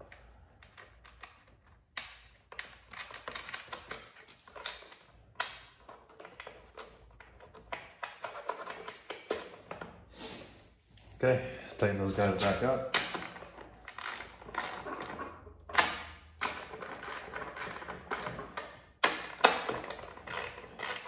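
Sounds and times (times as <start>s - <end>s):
nuts clicking and scraping on plastic: 16.4s - 21.0s.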